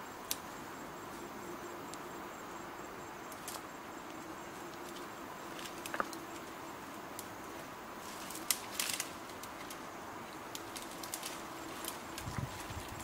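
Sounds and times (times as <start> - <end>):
twigs and brush crackling: 3.2 - 13.0.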